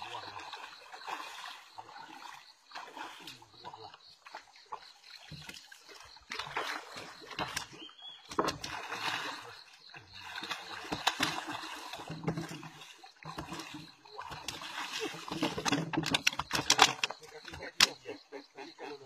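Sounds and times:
water splashing and sloshing: 0.0 - 19.0.

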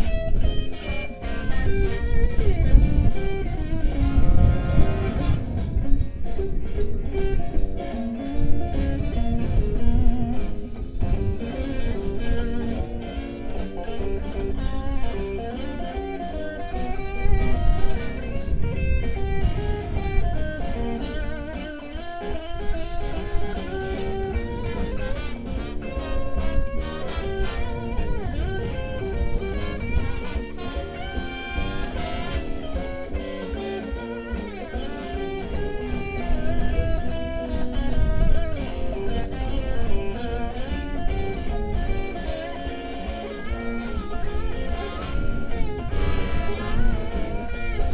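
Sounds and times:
horns: 0.0 - 6.6, 16.8 - 36.1, 43.1 - 47.9
blues band playing: 0.0 - 47.9
drum kit: 0.0 - 47.9
lead guitar: 0.0 - 47.9.

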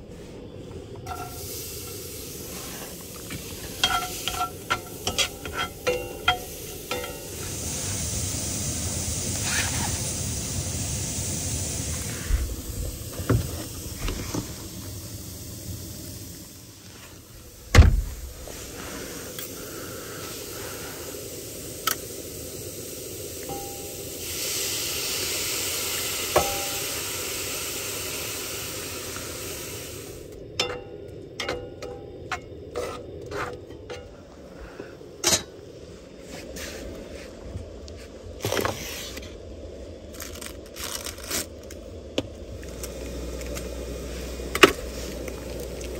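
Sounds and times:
onions sizzling in a skillet: 1.1 - 17.3, 18.4 - 30.3, 42.4 - 45.9.

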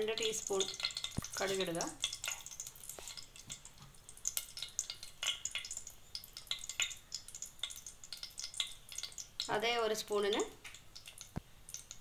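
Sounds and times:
seeds crackling and popping: 0.0 - 12.0
seeds sizzling in hot oil: 0.0 - 12.0.

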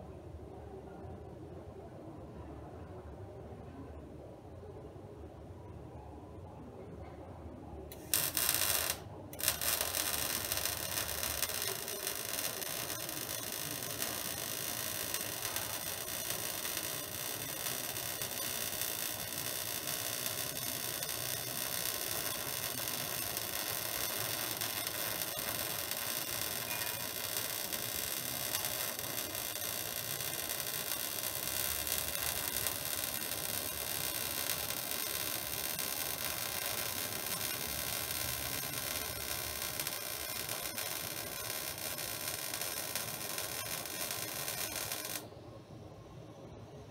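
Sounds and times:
welding arc hiss: 7.9 - 45.3.

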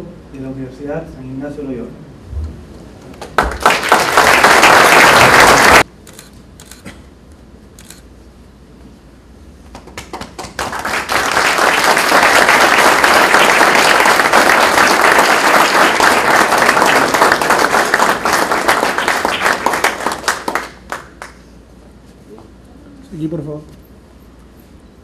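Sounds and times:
audience applauding: 3.2 - 5.9, 9.8 - 21.4.

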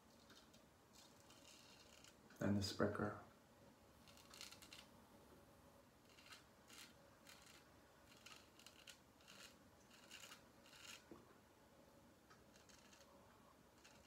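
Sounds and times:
razor scraping stubble: 1.0 - 2.2, 4.0 - 4.9, 6.0 - 11.2, 12.5 - 13.1, 13.8 - 14.0.

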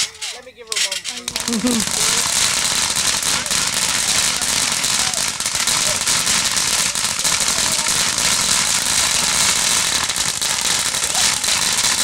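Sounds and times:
firework fountain hissing and crackling: 0.0 - 12.0.

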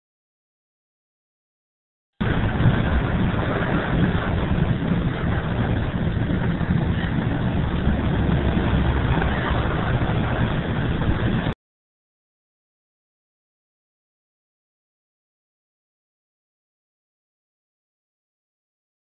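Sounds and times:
vehicle engine and road noise: 2.2 - 11.6.

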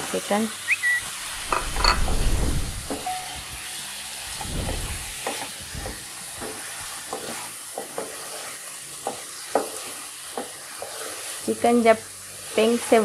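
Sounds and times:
chicken sizzling in oil: 2.7 - 13.0
spatula scraping and tapping pan: 6.4 - 11.3.

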